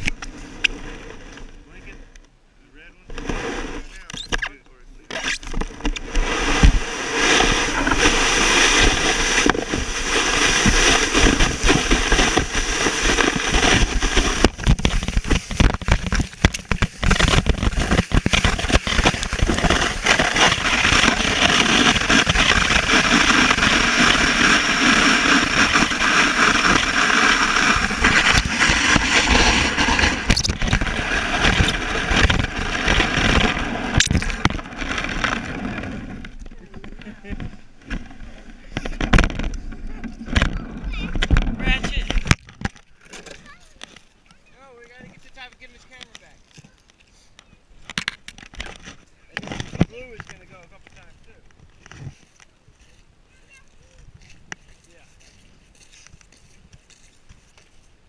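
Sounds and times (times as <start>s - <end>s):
sled scraping over snow: 0.0s - 2.1s, 2.7s - 46.8s, 48.0s - 58.0s
sled knocking over bumps: 5.4s - 43.9s.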